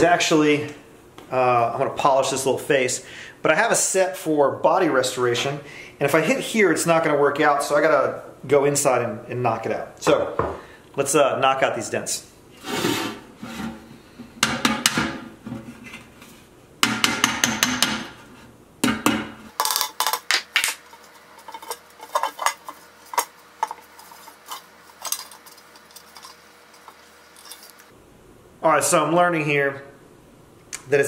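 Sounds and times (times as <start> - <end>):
hammer tapping copper kettle: 16.8 - 18.1.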